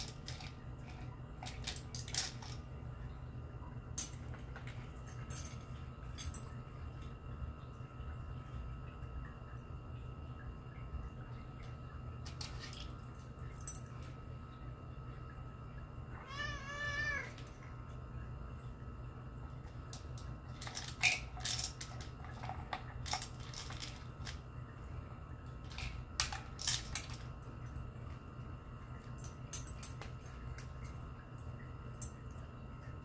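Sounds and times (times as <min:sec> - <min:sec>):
plastic cups clicking and knocking: 0:00.0 - 0:02.6, 0:19.9 - 0:24.4, 0:25.6 - 0:27.3
cat meowing: 0:16.2 - 0:17.4.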